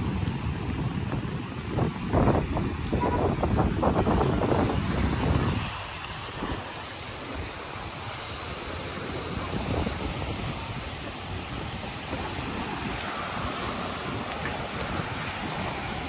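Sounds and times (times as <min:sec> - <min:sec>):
rushing noise: 0:00.0 - 0:16.0
wind buffeting microphone: 0:00.0 - 0:16.0.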